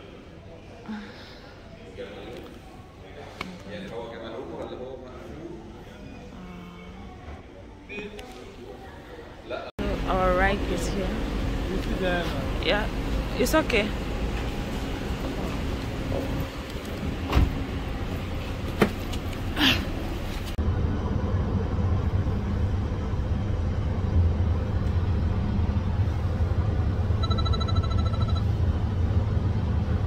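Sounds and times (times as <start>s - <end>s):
road and engine rumble in car: 9.8s - 30.0s
electronic beeps: 27.2s - 28.5s.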